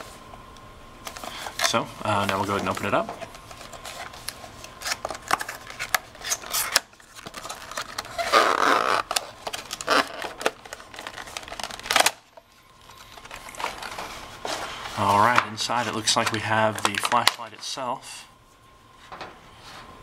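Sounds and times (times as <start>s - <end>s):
plastic crackle: 1.0s - 14.3s
cardboard and plastic rustling: 1.0s - 17.8s.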